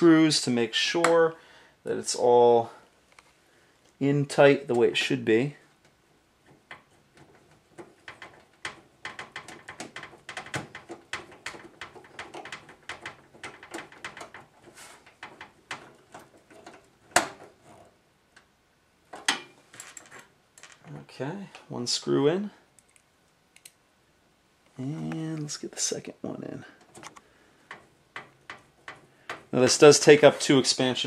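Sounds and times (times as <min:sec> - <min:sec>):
metal clicks taps and scrapes: 0:26.8 - 0:29.6.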